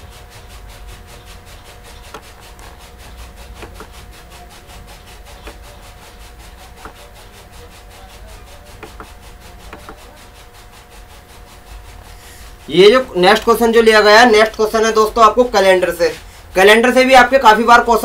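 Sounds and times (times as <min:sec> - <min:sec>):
faint clicks and rubbing: 0:01.7 - 0:12.6.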